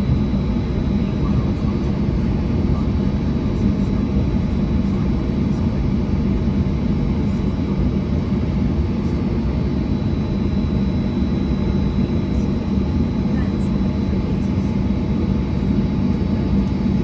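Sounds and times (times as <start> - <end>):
faint high whine: 0.0 - 17.0
jet engines low rumble in cabin: 0.0 - 17.0.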